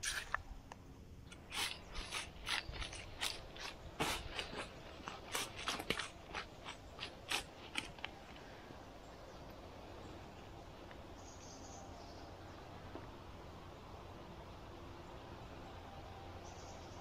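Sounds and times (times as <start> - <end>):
short scrapes and clicks: 0.0 - 0.5, 1.3 - 8.2.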